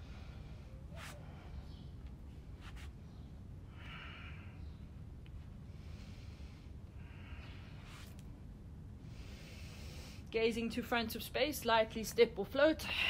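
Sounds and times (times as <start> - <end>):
woman breathing: 0.0 - 2.0, 3.6 - 5.0, 5.7 - 8.1, 9.0 - 10.3.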